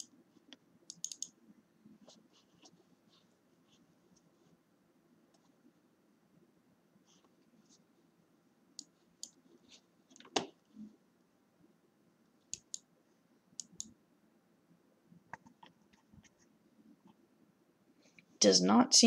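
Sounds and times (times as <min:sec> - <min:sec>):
computer mouse clicking: 0:00.0 - 0:01.4, 0:08.8 - 0:09.4, 0:12.5 - 0:12.9, 0:13.6 - 0:14.0.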